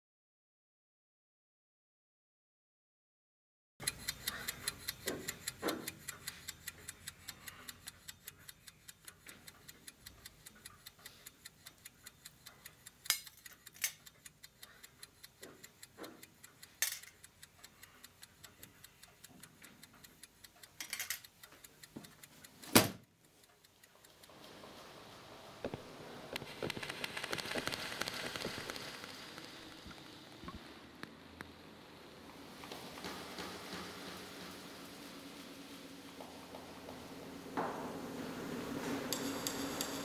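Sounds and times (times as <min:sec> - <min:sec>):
watch ticking fast: 0:03.8 - 0:24.4, 0:26.4 - 0:30.6.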